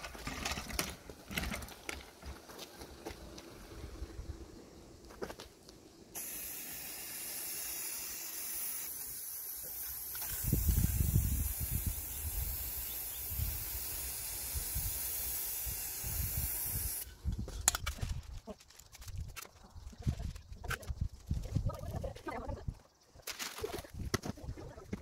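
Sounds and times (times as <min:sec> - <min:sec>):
spray can hissing: 0:06.2 - 0:17.1.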